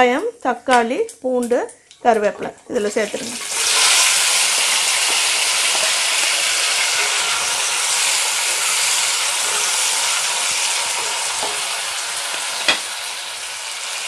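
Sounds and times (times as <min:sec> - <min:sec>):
vegetables sizzling in oil: 0:02.1 - 0:14.0
wooden spatula stirring: 0:03.4 - 0:12.9.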